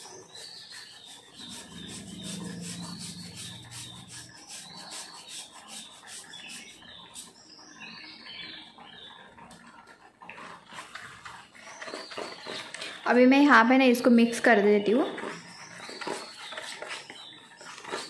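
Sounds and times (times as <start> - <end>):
grater rasping: 0.0 - 7.4.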